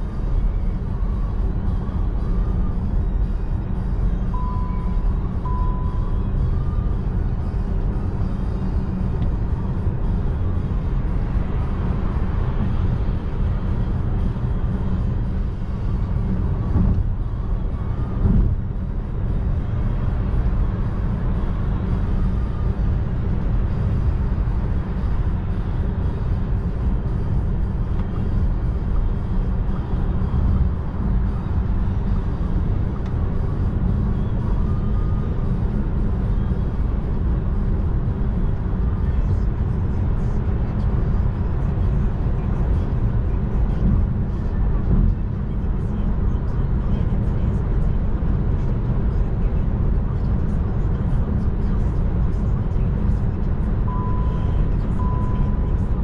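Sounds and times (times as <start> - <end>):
road and tyre rumble: 0.0 - 56.0
wind noise in car cabin: 0.0 - 56.0
short high beeps: 4.3 - 6.2, 53.9 - 55.6.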